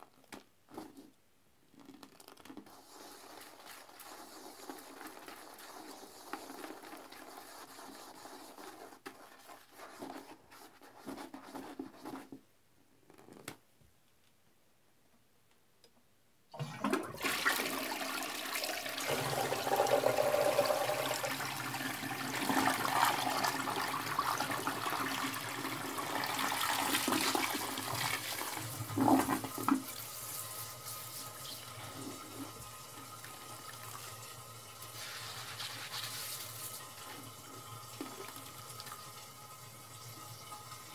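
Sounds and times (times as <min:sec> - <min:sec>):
toilet brush scrubbing bowl: 0:02.6 - 0:12.4, 0:16.6 - 0:39.0
toilet bowl refilling: 0:16.5 - 0:30.2, 0:31.2 - 0:36.0, 0:36.7 - 0:40.9
toilet flushing: 0:16.5 - 0:40.9.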